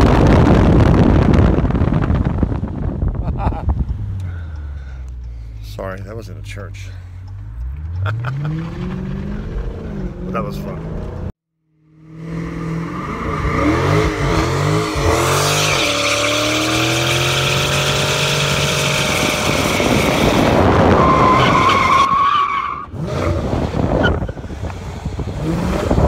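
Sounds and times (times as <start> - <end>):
car engine revving: 3.5 - 26.0
tyres squealing on pavement: 15.4 - 23.0.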